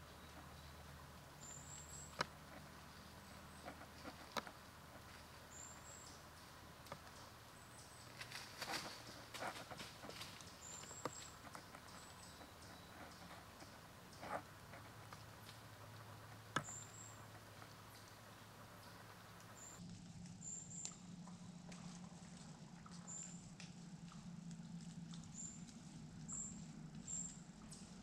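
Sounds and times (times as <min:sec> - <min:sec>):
leaves rustling: 0:00.0 - 0:20.4.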